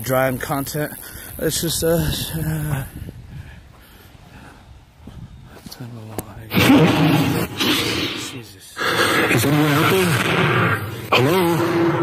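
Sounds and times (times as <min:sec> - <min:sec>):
low wind rumble: 0:01.2 - 0:05.6.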